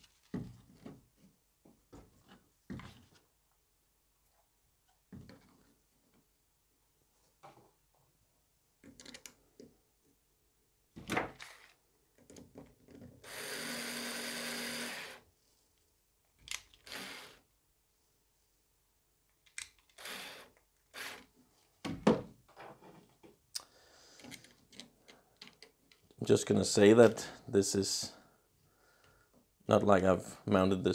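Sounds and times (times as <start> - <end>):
parts and tools clicking: 8.8 - 9.7, 16.4 - 17.4, 19.3 - 21.3, 23.6 - 26.2
cordless screwdriver running: 13.2 - 15.2, 16.8 - 17.4, 20.0 - 21.2.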